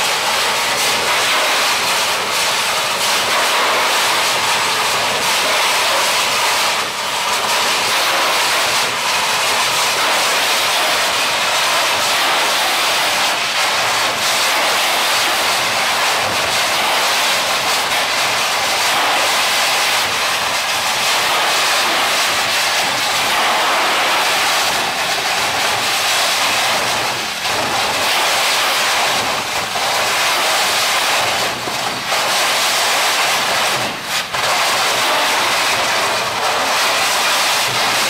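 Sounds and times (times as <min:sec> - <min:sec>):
high-pressure water jet hissing: 0:00.0 - 0:38.0.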